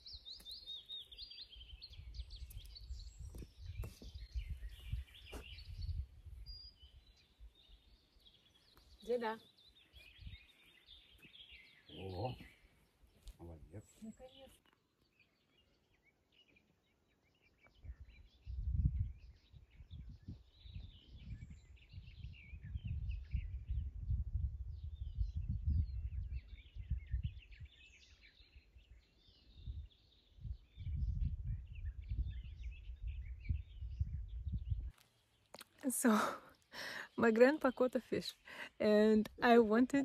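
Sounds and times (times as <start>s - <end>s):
wind rumbling on microphone: 0.0s - 12.5s, 17.6s - 35.0s
small birds chirping: 0.0s - 40.0s.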